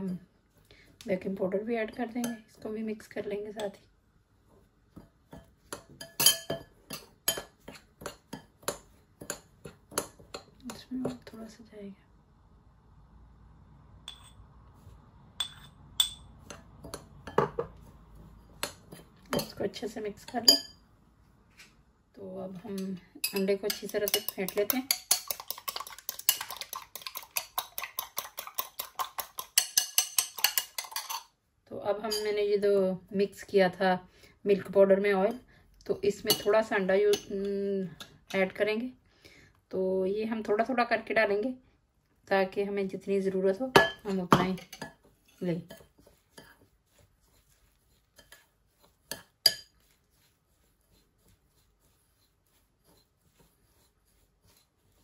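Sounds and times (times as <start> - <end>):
spoon clinking in ceramic bowl: 5.3 - 9.4, 14.1 - 14.4, 15.4 - 17.7, 20.4 - 20.8, 22.8 - 31.3, 32.1 - 32.3, 36.3 - 37.3.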